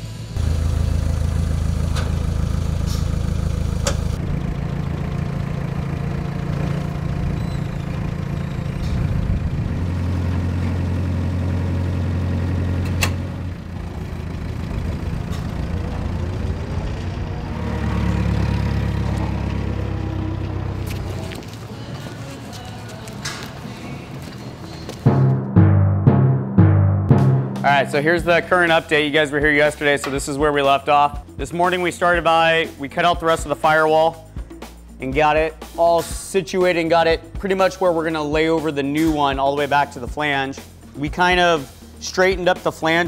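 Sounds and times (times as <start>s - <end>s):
forklift engine running: 0.0s - 25.1s.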